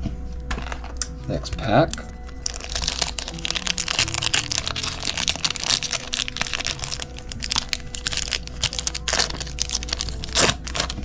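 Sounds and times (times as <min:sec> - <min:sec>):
foil wrapper crinkling: 0:00.5 - 0:11.0.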